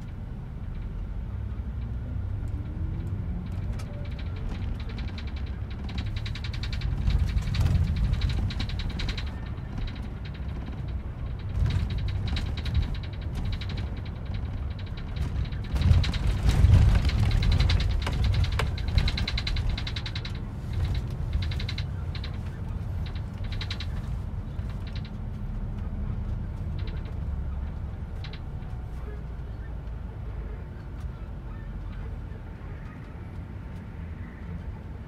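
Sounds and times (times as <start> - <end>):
bus rumble: 0.0 - 35.0
rapid high-pitched clicking: 3.4 - 25.2.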